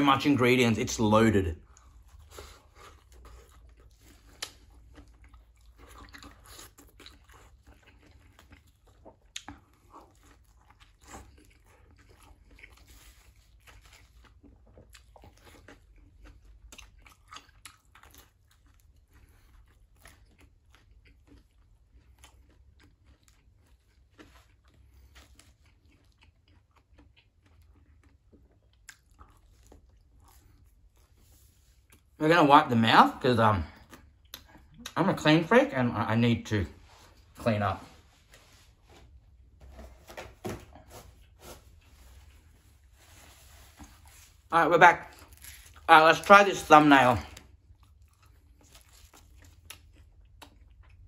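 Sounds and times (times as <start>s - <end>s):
chewing pizza with crunches: 1.6s - 32.2s, 40.8s - 51.0s.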